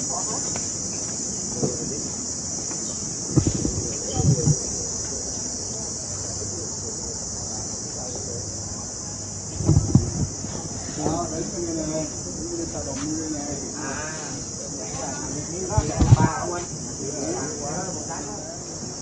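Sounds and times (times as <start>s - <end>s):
insects shrilling: 0.0s - 19.0s
low bumps: 3.2s - 4.8s, 9.5s - 11.8s, 15.7s - 16.4s.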